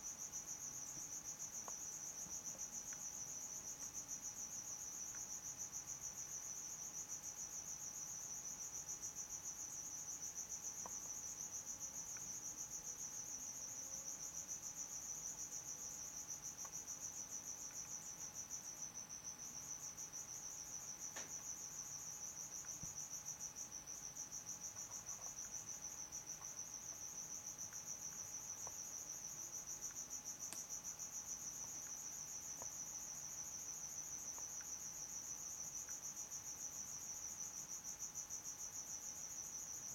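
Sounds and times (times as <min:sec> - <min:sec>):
faint ticks: 0:00.9 - 0:05.4, 0:21.1 - 0:21.6, 0:29.8 - 0:30.8, 0:31.5 - 0:32.8, 0:35.7 - 0:36.1.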